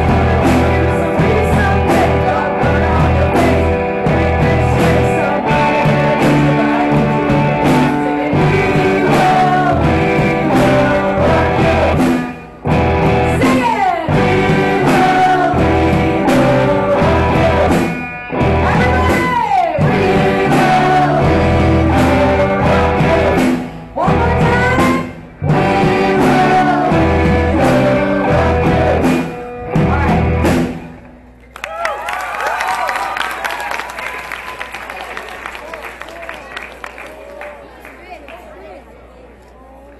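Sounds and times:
live rock band playing: 0.0 - 31.4.

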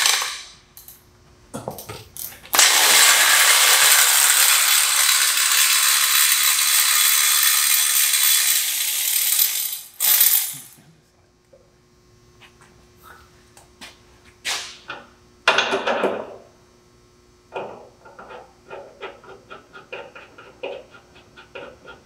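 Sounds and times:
power ratchet spinning: 2.5 - 10.8.

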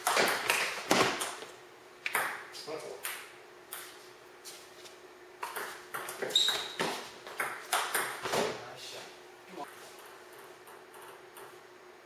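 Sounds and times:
short high squeak: 6.3 - 6.8
table tennis ball clicking and bouncing: 7.3 - 8.2, 10.0 - 11.6.

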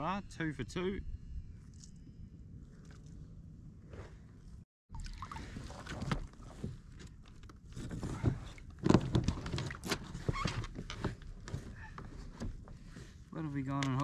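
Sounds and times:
knocks and rubbing on plastic kayak: 7.6 - 13.2.

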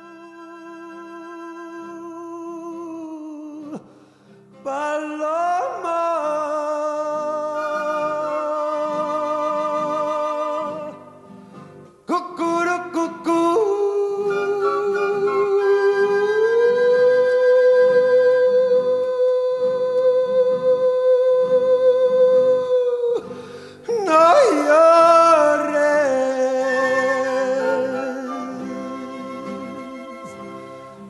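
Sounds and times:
slow background music: 23.9 - 31.0.

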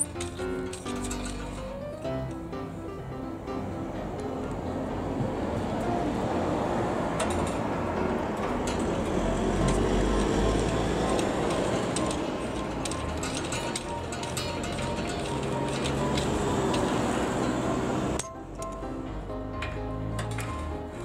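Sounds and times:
vehicle passing with low rumble: 2.2 - 18.2.

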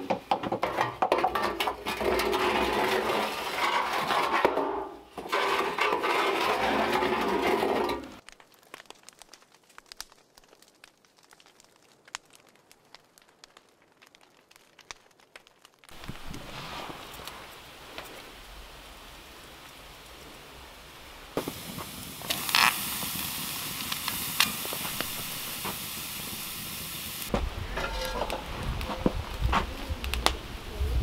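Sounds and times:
wood fire crackling: 0.0 - 31.0
faint pops and crackles: 8.2 - 31.0.

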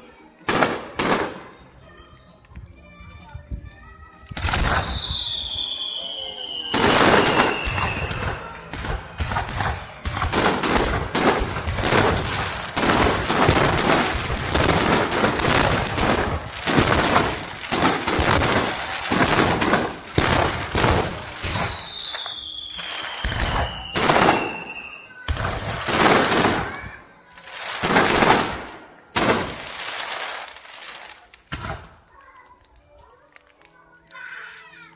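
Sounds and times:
music playing: 0.0 - 13.3
firework shells booming and crackling: 0.5 - 1.6, 4.4 - 32.1.

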